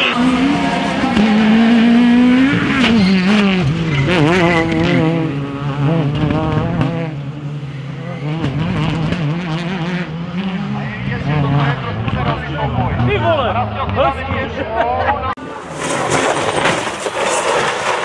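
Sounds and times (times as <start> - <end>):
rally car engine revving: 0.0 - 18.0
tyres scrabbling on gravel: 15.5 - 18.0.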